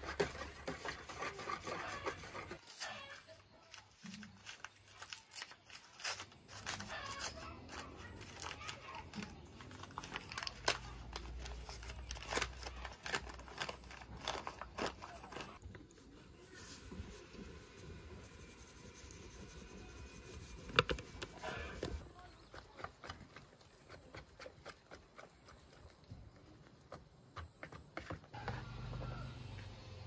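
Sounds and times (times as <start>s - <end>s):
paper bag tearing and crinkling: 3.9s - 15.6s.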